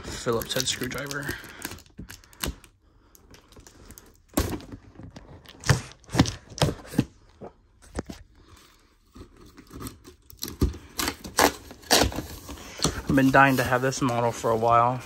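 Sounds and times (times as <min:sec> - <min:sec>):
cardboard tearing: 0:09.3 - 0:15.0.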